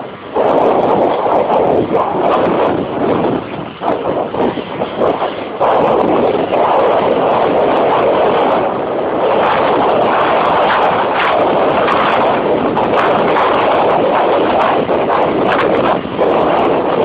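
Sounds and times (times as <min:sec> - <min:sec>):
strong wind roaring over microphone: 0:00.0 - 0:17.0.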